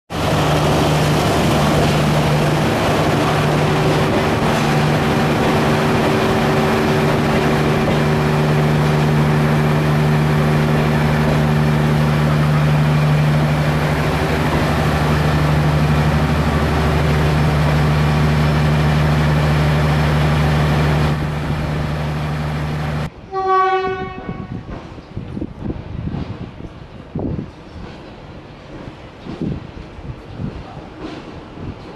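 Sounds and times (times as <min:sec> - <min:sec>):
diesel locomotive engine droning: 0:00.1 - 0:31.8
train horn blast: 0:23.2 - 0:24.7.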